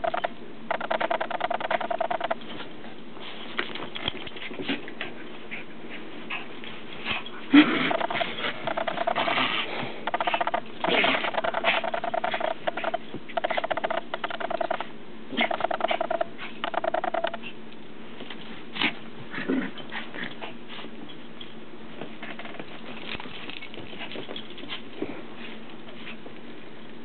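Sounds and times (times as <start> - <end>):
dogs play-growling: 0.0 - 17.6, 18.2 - 21.1, 22.0 - 26.3
dogs scuffling: 1.3 - 14.8, 18.1 - 26.9
paws pattering on carpet: 2.4 - 10.4, 21.9 - 27.0.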